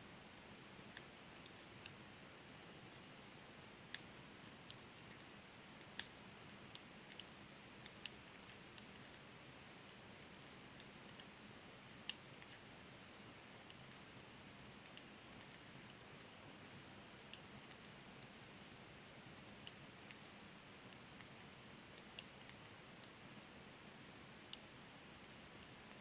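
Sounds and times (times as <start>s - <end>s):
room hiss: 0.0s - 26.0s
knitting needles clicking: 0.9s - 2.0s, 5.9s - 9.0s, 12.1s - 12.6s, 14.8s - 16.0s, 22.0s - 23.2s, 24.5s - 25.8s.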